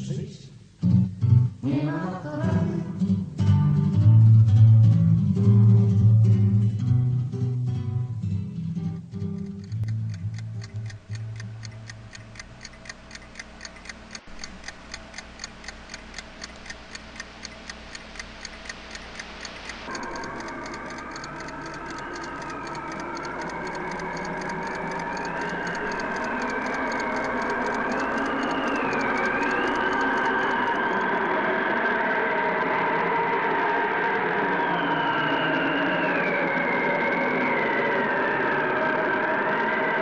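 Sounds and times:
guitar music: 3.0 - 11.6
clock ticking: 9.2 - 31.1.

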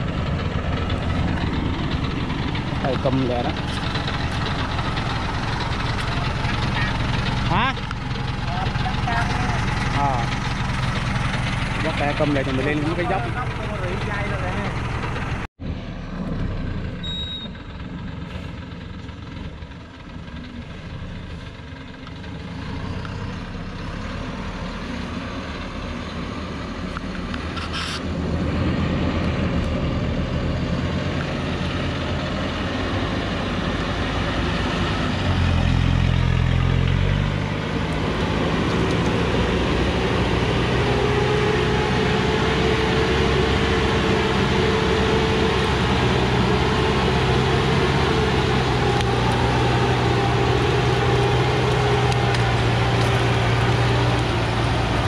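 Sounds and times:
truck diesel engine labouring: 0.0 - 55.0.

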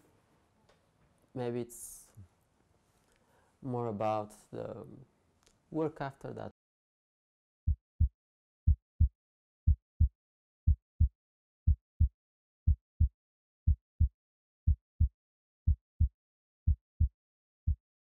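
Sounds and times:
heartbeat thumps: 14.7 - 15.1, 16.7 - 17.1.

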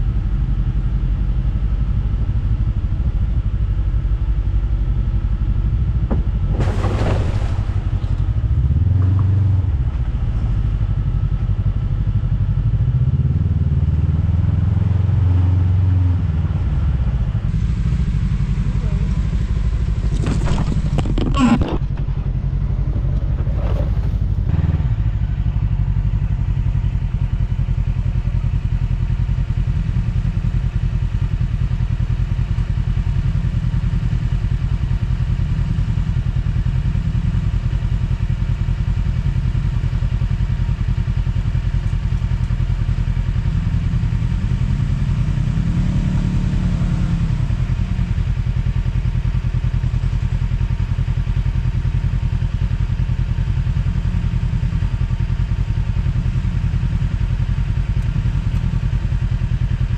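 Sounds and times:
utility vehicle engine running: 0.0 - 59.9
clatters and scrapes: 20.0 - 24.5.

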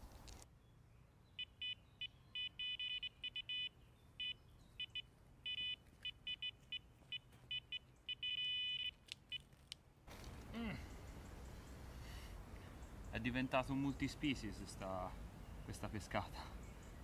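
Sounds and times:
bite alarm beeping: 1.4 - 9.4.

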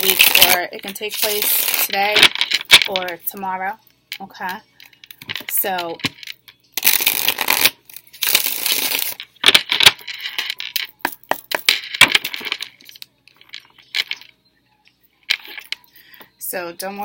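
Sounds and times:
cards riffling: 5.0 - 13.0.

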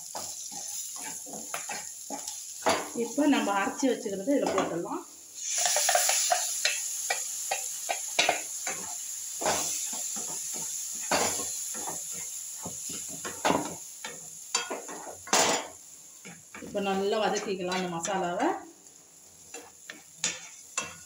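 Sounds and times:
wooden spatula scraping a pan: 0.0 - 2.8
masala sizzling in a hot pan: 0.0 - 21.0.

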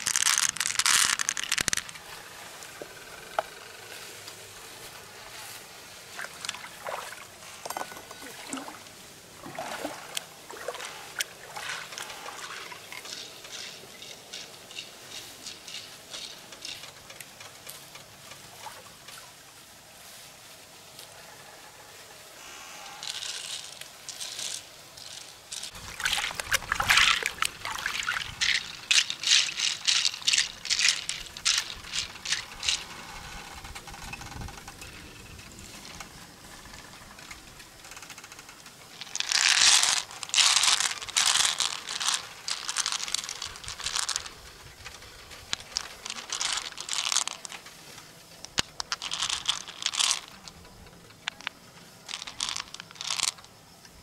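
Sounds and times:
pearls rattling and clicking in shell: 0.0 - 2.1, 11.6 - 18.2, 23.0 - 34.9, 35.7 - 53.7.

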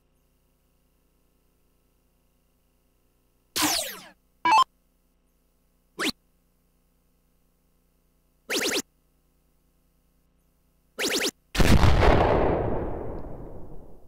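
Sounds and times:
rising electronic chirps: 3.6 - 4.7, 8.5 - 8.8, 11.0 - 11.4
explosion-like blast: 11.6 - 14.0.

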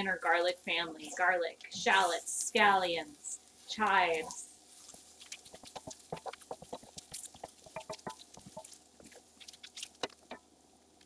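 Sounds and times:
wooden spatula scraping a pan: 4.1 - 10.2
clicks and taps against pan: 5.5 - 8.7.

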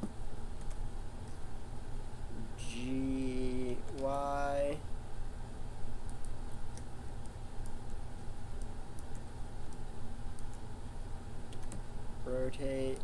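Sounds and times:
steady low hum: 0.0 - 13.0
computer keyboard and mouse clicks: 0.6 - 0.8, 11.5 - 11.8.

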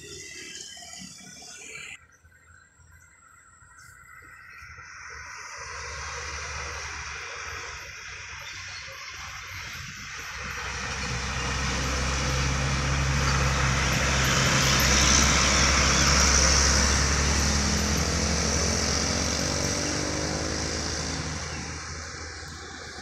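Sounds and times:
truck engine pulling uphill: 5.5 - 23.0.

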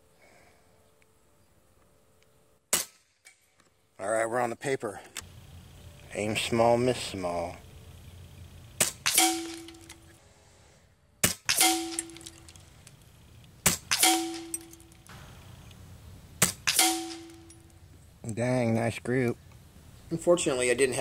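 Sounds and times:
air rifle shots: 8.8 - 10.1, 11.2 - 12.8, 13.6 - 15.8, 16.4 - 17.6
ringing metallic clang: 9.0 - 10.1, 11.5 - 12.7, 13.9 - 15.6, 16.6 - 17.9.

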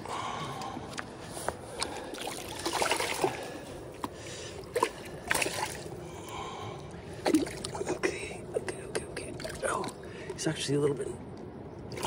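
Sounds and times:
river water trickling: 0.0 - 12.0
fish splashing: 1.7 - 3.6, 4.5 - 6.5, 7.2 - 7.9.

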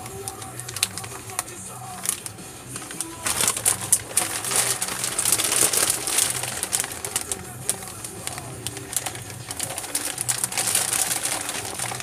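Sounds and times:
background music: 0.0 - 12.0
plastic bags crinkling: 0.0 - 12.0.

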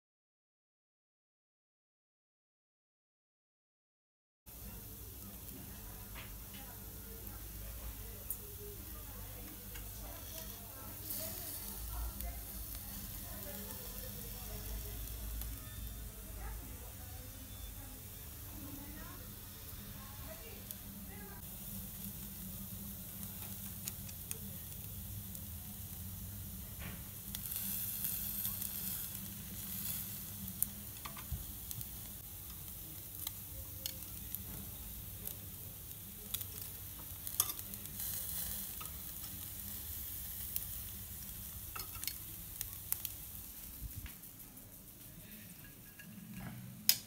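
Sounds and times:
meat sizzling on a grill: 4.5 - 47.0
metal utensils clicking on grate: 30.6 - 31.3, 36.3 - 39.4, 41.7 - 42.3.

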